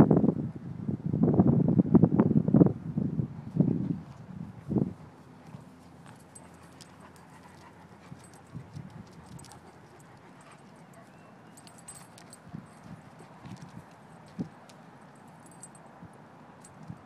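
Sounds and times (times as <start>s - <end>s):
light clicks and jingles: 4.0s - 17.0s
dog panting: 4.6s - 13.4s.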